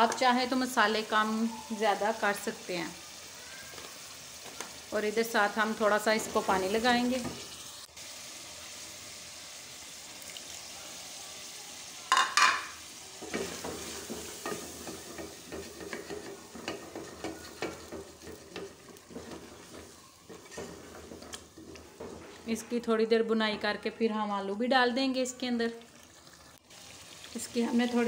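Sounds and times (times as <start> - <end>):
food sizzling in oil: 0.0 - 28.0
spatula scraping and knocking pot: 12.2 - 22.9.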